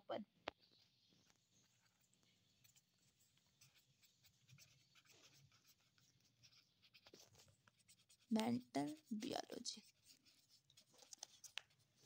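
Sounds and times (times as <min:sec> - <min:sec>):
pen scratching on paper: 0:00.7 - 0:12.0.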